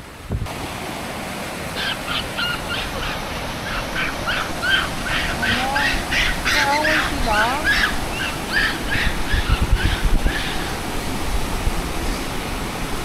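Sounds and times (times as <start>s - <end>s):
monkeys giving squeaky calls: 1.8s - 10.5s.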